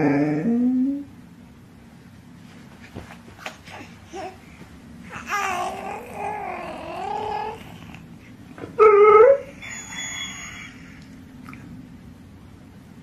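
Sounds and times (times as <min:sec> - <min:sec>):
dog crying: 0:08.8 - 0:11.0.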